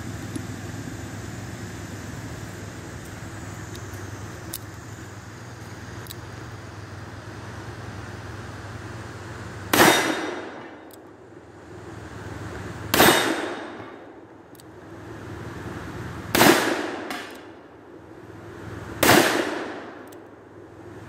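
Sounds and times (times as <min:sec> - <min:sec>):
revolver shots echoing: 0:09.7 - 0:10.6.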